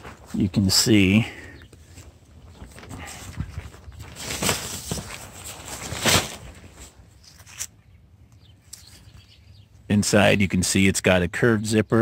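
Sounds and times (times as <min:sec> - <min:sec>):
tent fabric rustling: 0:01.9 - 0:07.7.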